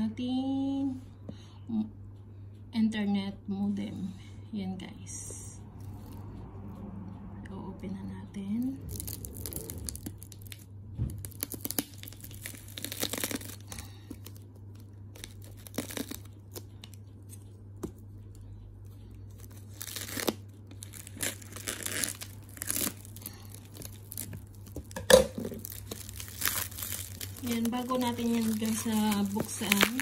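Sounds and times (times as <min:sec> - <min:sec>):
plastic wrap tearing and crinkling: 0:08.9 - 0:17.4, 0:19.3 - 0:30.0
scissors cutting plastic wrap: 0:08.9 - 0:18.0, 0:19.3 - 0:30.0.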